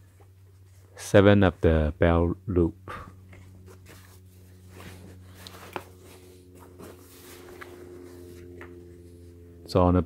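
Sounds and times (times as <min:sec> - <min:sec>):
steady low hum: 0:00.0 - 0:10.0
rustling of trousers: 0:03.3 - 0:09.4.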